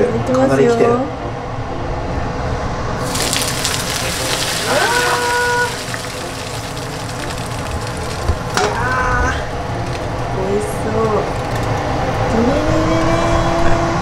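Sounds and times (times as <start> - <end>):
hot oil sizzling: 3.0 - 11.8.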